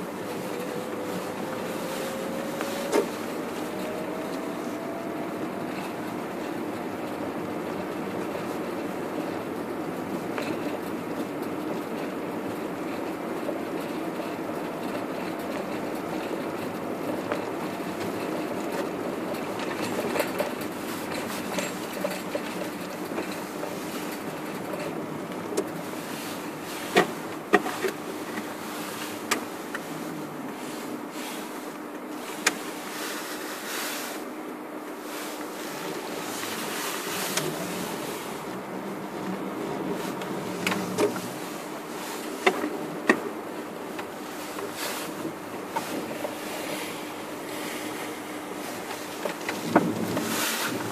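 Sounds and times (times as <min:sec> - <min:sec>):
low hum: 0:00.0 - 0:08.6
car engine and tyre noise: 0:00.0 - 0:50.9.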